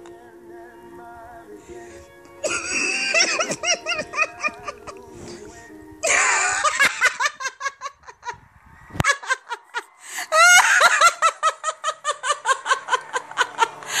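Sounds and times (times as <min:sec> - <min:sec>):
person laughing high-pitched: 0:02.4 - 0:05.4, 0:06.0 - 0:14.0.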